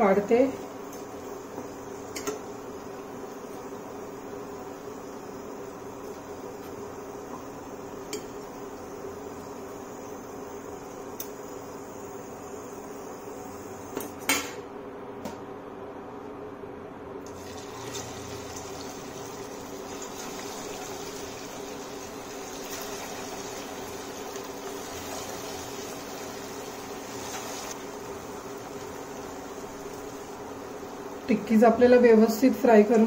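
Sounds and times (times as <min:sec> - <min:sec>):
patties sizzling in hot oil: 0:17.2 - 0:33.0.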